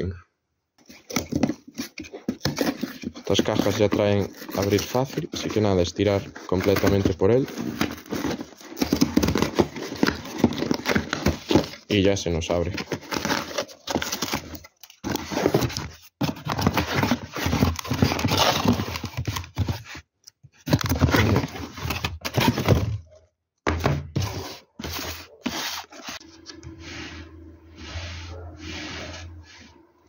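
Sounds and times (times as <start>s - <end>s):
cardboard scraping and tearing: 0.8s - 11.9s, 12.7s - 20.0s, 20.7s - 23.0s, 24.1s - 26.5s.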